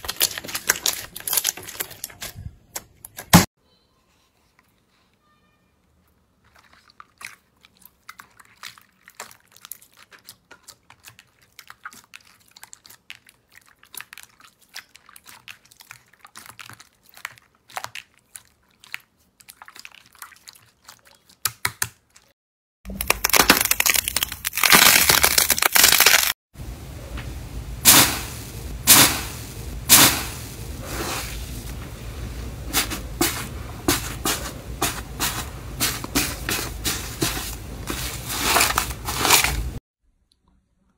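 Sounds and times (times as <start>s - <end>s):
crunchy slime crackling: 0.0s - 2.4s, 22.9s - 26.4s, 34.9s - 39.8s
slime squelching: 0.0s - 3.2s, 6.0s - 22.3s, 30.7s - 39.8s
loud hissing rush: 26.6s - 37.4s.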